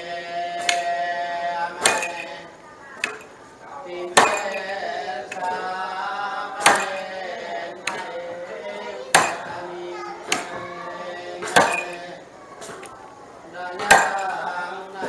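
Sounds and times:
wooden staff knocking on tiles: 0:00.6 - 0:01.0, 0:01.8 - 0:02.4, 0:04.2 - 0:05.6, 0:06.6 - 0:07.2, 0:07.8 - 0:08.2, 0:11.4 - 0:12.1, 0:13.8 - 0:14.4
man chanting: 0:03.6 - 0:12.3, 0:13.5 - 0:15.0.

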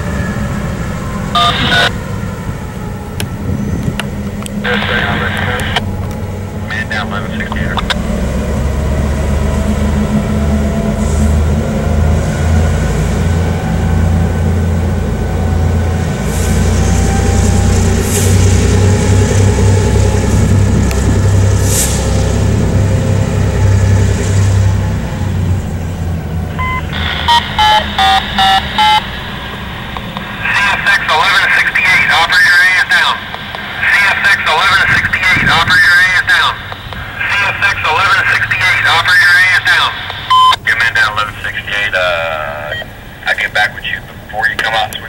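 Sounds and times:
scanner radio: 0:00.0 - 0:02.0, 0:02.7 - 0:08.0, 0:26.5 - 0:45.0
diesel locomotive engine rumbling: 0:00.0 - 0:45.0
electronic beeps: 0:01.3 - 0:01.9, 0:26.5 - 0:32.3, 0:39.8 - 0:41.0.

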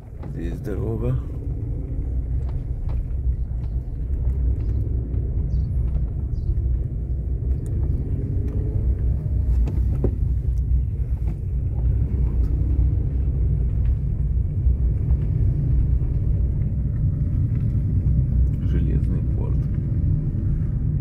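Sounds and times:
engine and tyre rumble: 0:00.0 - 0:21.0.

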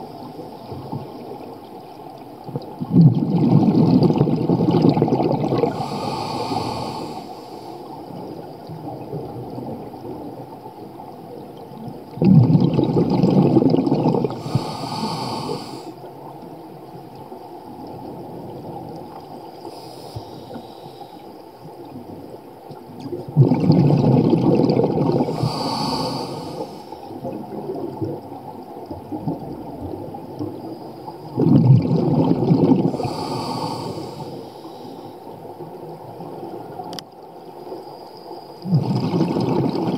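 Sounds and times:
quiet watery hiss: 0:00.0 - 0:39.9
exhaled bubbles gushing: 0:02.4 - 0:07.3, 0:07.9 - 0:16.0, 0:23.0 - 0:34.4, 0:38.6 - 0:39.9
regulator hiss: 0:05.7 - 0:07.9, 0:14.4 - 0:16.0, 0:19.6 - 0:21.2.

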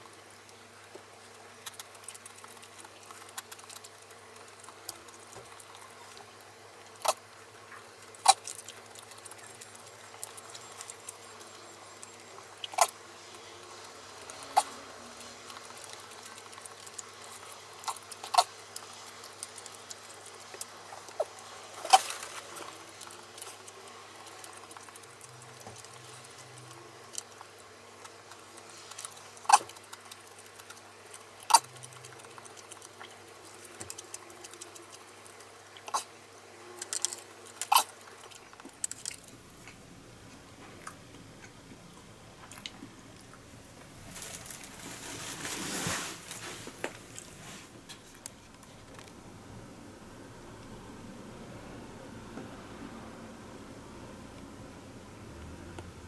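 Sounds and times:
steady low hum: 0:00.0 - 0:56.0.

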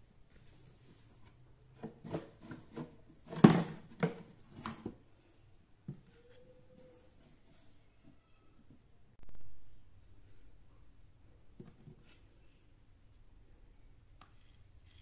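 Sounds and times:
plastic scrapes and knocks: 0:01.8 - 0:05.0.

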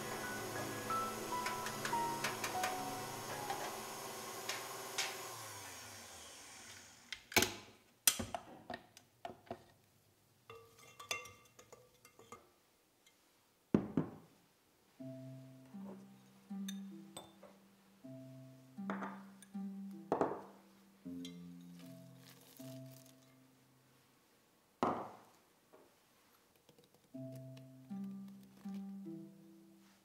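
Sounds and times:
background music: 0:00.0 - 0:05.2, 0:15.0 - 0:23.9, 0:26.9 - 0:30.0.

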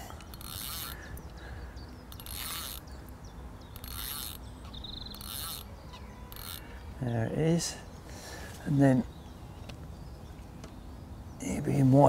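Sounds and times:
fishing reel whirring: 0:00.0 - 0:01.2, 0:02.1 - 0:02.9, 0:03.7 - 0:06.8.

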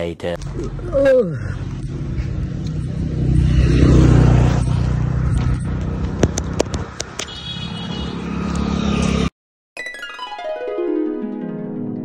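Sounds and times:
vehicle engine running: 0:00.4 - 0:07.2.

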